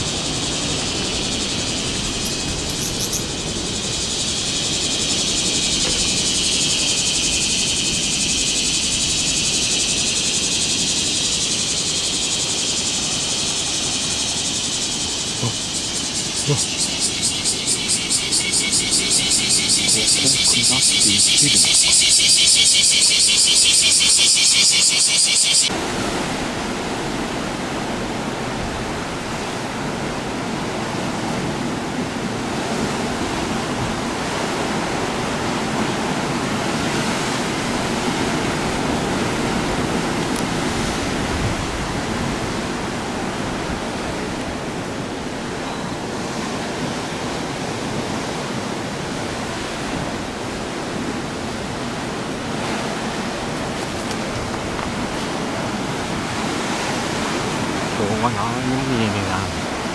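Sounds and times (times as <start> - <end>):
pulsing cicada chorus: 0.0 - 59.9.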